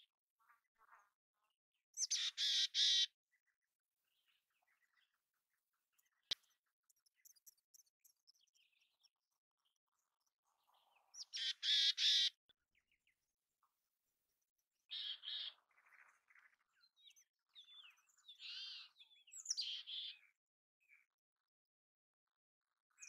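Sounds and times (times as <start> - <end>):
chickadee harsh buzzy calls: 2.2 - 3.1, 11.4 - 12.3.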